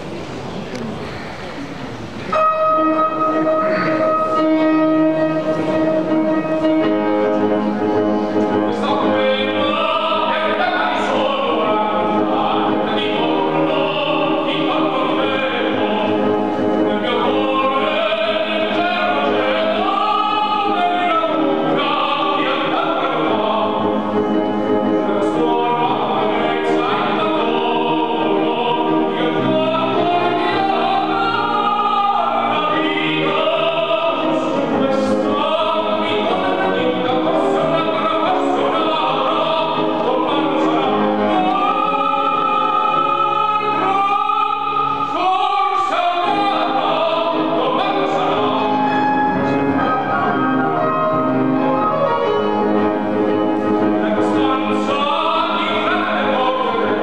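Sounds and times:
grand piano: 0:00.0 - 0:57.0
man singing operatically: 0:08.5 - 0:52.1, 0:53.8 - 0:57.0.

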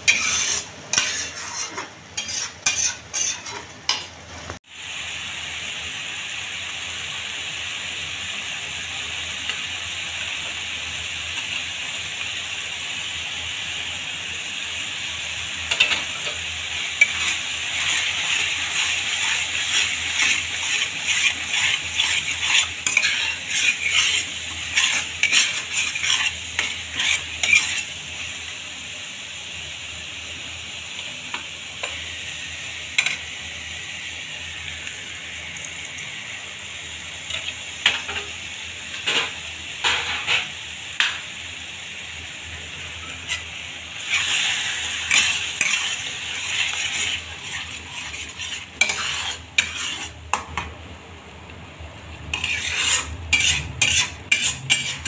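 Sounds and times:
spatula scraping pan: 0:00.0 - 0:04.2, 0:15.7 - 0:28.4, 0:32.9 - 0:33.3, 0:43.0 - 0:50.7, 0:52.3 - 0:55.0
paste sizzling in oil: 0:00.0 - 0:50.7, 0:52.3 - 0:55.0.

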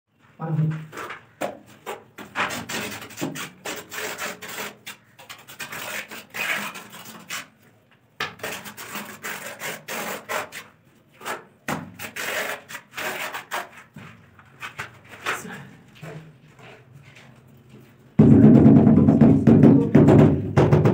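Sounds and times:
trowel scraping mortar on tile: 0:01.8 - 0:07.6, 0:08.2 - 0:14.0.

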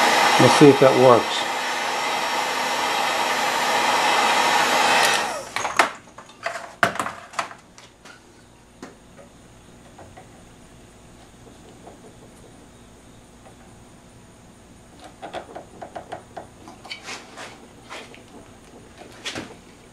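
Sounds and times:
heat gun blowing: 0:00.0 - 0:05.6.

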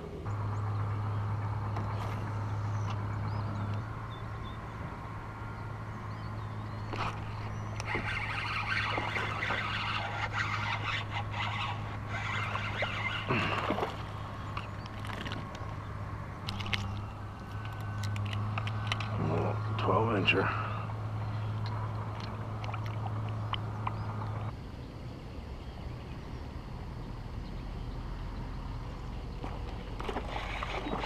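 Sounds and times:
steady low hum: 0:00.0 - 0:31.0
water splashing: 0:06.8 - 0:20.0, 0:20.6 - 0:24.5, 0:29.4 - 0:31.0.

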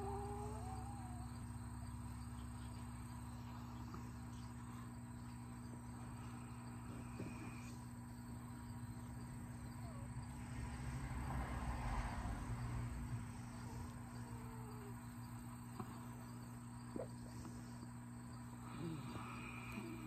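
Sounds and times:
pet snoring: 0:00.0 - 0:01.3, 0:06.1 - 0:07.8, 0:13.0 - 0:15.2, 0:18.6 - 0:20.0
faint steady hum: 0:00.0 - 0:20.0.

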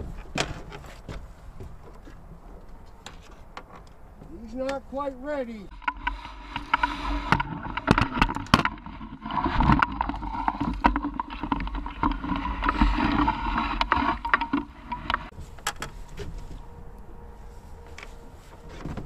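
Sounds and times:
sharp knocks and clatters: 0:05.7 - 0:15.8
water splashing and sloshing: 0:05.7 - 0:16.5.

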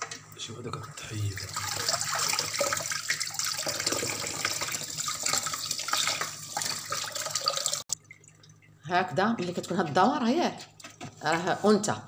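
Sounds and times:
tap water splashing into sink: 0:01.4 - 0:08.5.

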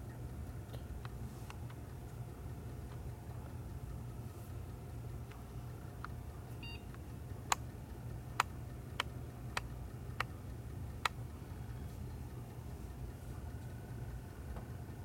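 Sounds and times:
steady low hum: 0:00.0 - 0:15.0
disk drive clicks: 0:04.6 - 0:14.8.

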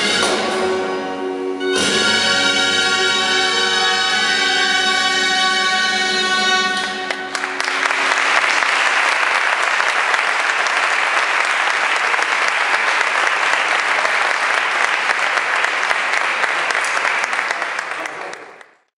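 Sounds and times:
double-reed shawms chord: 0:00.0 - 0:08.6
audience applause: 0:07.0 - 0:18.9.

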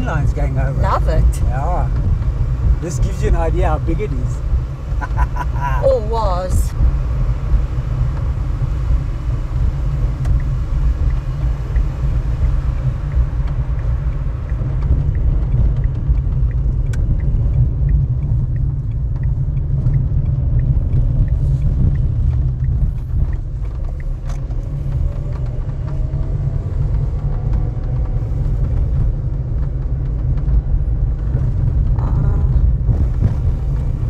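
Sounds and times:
car tyres and engine rumble: 0:00.0 - 0:34.0
faint ticks: 0:10.2 - 0:26.0.

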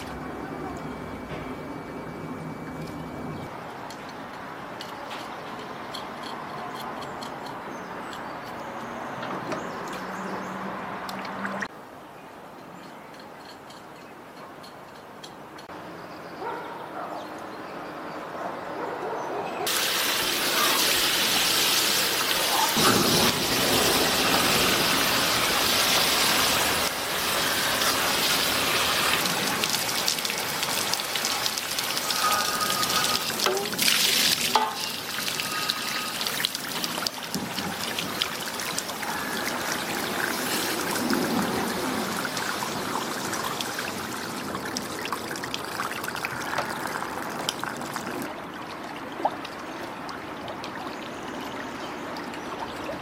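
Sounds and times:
hose water splashing into metal tray: 0:19.7 - 0:48.2
water spattering onto concrete: 0:19.7 - 0:48.3.

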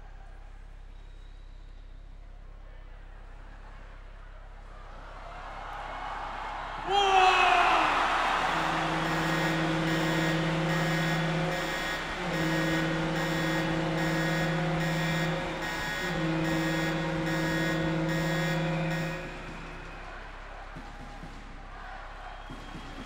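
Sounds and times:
low horn blasts: 0:00.0 - 0:23.0
quick regular beat: 0:08.0 - 0:23.0.

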